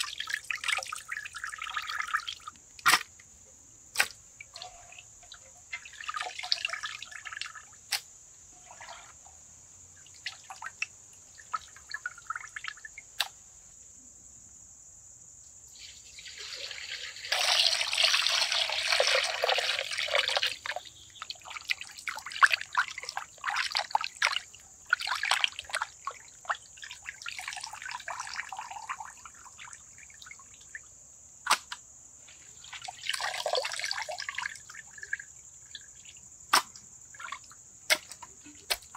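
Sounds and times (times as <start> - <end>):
water pouring: 0.0 - 2.4, 4.4 - 7.7, 15.7 - 26.2, 32.6 - 35.3
wet clicks: 3.9 - 4.2, 13.2 - 13.4
water dripping and splashing: 15.8 - 30.8, 32.6 - 38.9.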